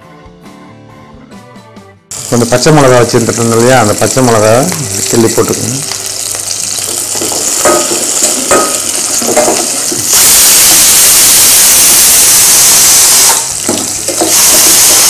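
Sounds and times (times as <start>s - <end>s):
onions sizzling in hot oil: 2.1s - 15.0s
pressure cooker whistle hissing: 7.5s - 15.0s.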